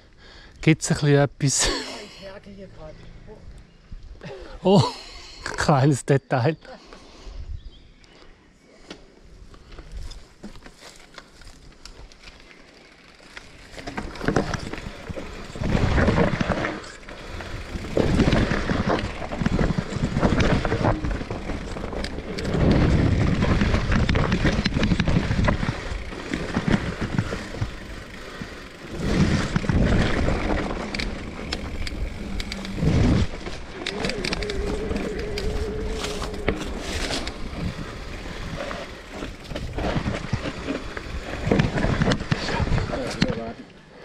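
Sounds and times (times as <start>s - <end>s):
bike tyre rumble and knocks: 13.0s - 43.5s
wind buffeting microphone: 14.4s - 43.1s.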